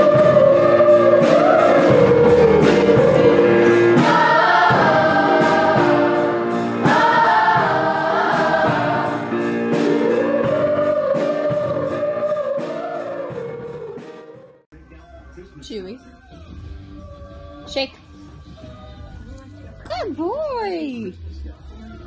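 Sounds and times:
song with singing over a beat: 0.0s - 14.5s.

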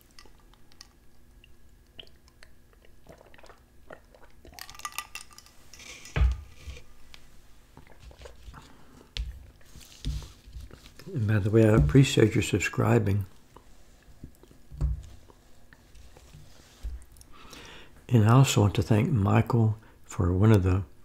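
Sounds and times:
drinking water: 0.0s - 5.0s
chewing: 0.0s - 6.1s, 7.7s - 11.2s.

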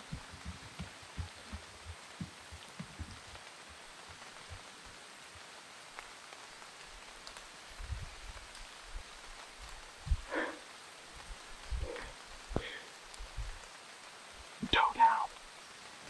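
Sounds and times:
soft low thumps: 0.0s - 3.4s
rain on leaves: 0.0s - 16.0s.

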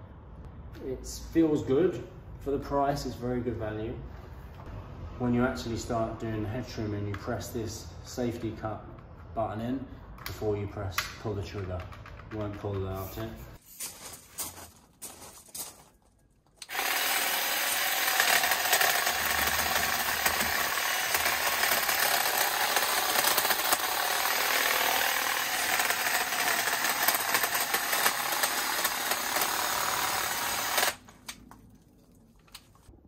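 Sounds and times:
hedge trimmer buzzing: 16.6s - 31.4s.

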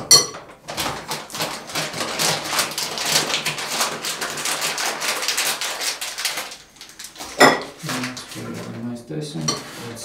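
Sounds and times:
paper packet crumpling: 0.7s - 8.9s.

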